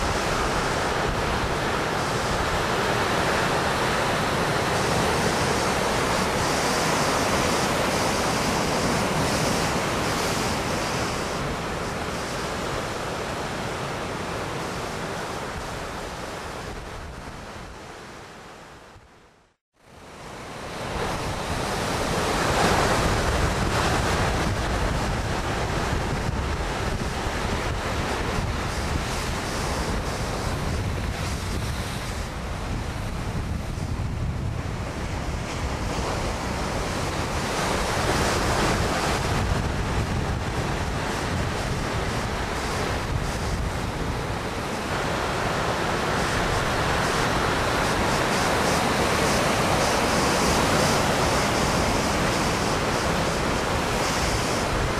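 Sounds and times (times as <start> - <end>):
ocean surf breaking: 0.0 - 18.6, 20.0 - 54.9
wind buffeting microphone: 20.8 - 54.9.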